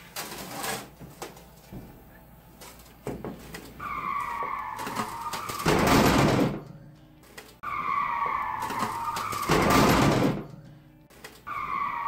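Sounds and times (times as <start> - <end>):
tyre screech: 3.8 - 5.8, 7.6 - 9.9.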